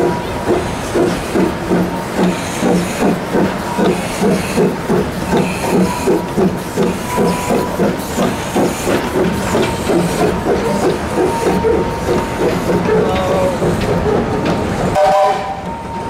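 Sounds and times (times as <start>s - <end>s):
steam locomotive chuffing: 0.0s - 16.0s
hiss of steam: 0.1s - 11.6s.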